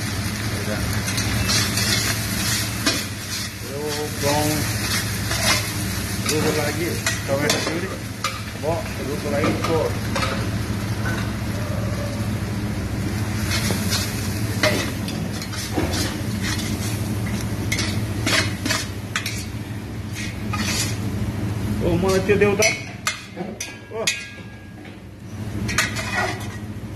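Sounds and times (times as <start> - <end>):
bones and vegetables sizzling: 0.0 - 23.4
steady low hum: 0.0 - 26.9
spoon scraping a metal pot: 20.1 - 21.0.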